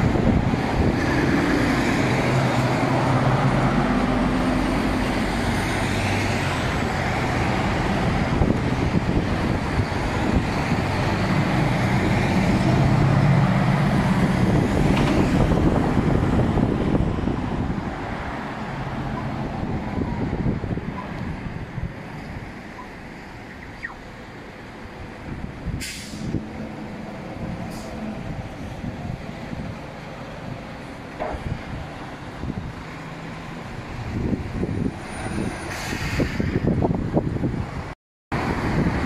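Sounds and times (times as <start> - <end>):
heavy engine low drone: 0.0 - 34.7
cars and trucks driving past: 0.0 - 39.0.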